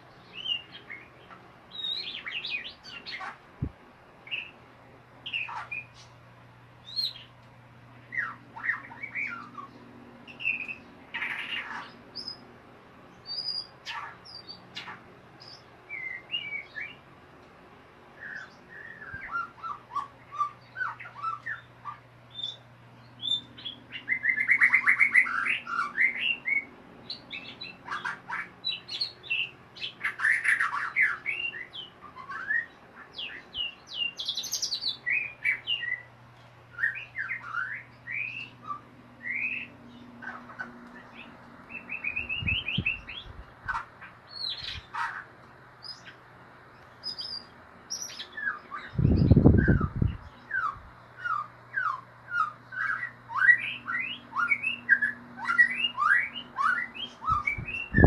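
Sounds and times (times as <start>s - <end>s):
faint low hum: 0.0s - 58.0s
bird singing fast whistled notes: 1.7s - 3.2s, 13.2s - 17.0s, 18.2s - 36.1s, 36.7s - 40.4s, 41.0s - 45.0s, 47.0s - 58.0s.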